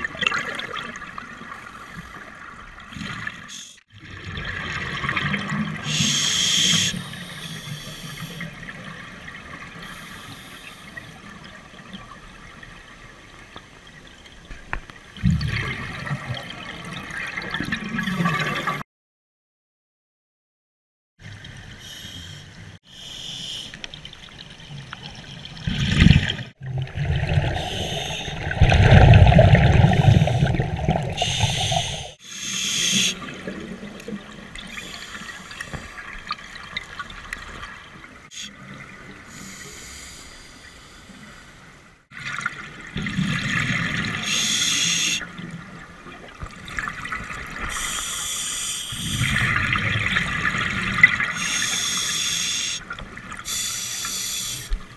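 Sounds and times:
underwater exhaled bubbles: 23.9s - 32.2s, 48.9s - 51.5s.

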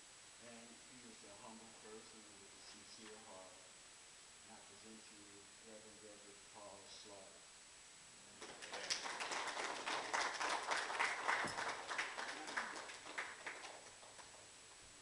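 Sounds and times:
audience applauding: 8.4s - 14.5s.

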